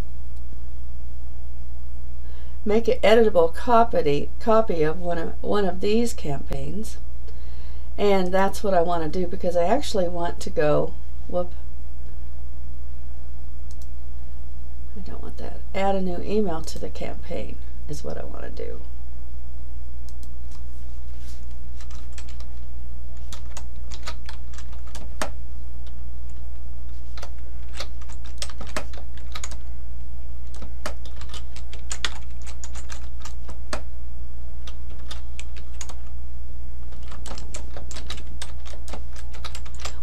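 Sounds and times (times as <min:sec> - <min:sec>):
low hum: 0:00.0 - 0:40.0
keyboard typing: 0:21.8 - 0:22.6, 0:23.2 - 0:26.0, 0:27.1 - 0:29.6, 0:30.5 - 0:33.8, 0:34.6 - 0:36.1, 0:36.8 - 0:40.0.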